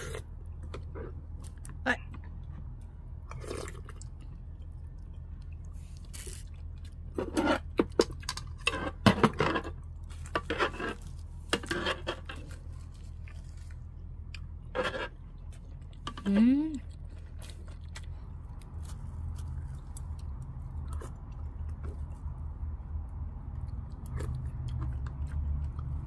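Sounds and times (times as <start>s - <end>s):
steady low hum: 0.0s - 26.0s
wet crunchy chewing: 2.6s - 16.2s, 16.8s - 22.6s, 23.4s - 26.0s.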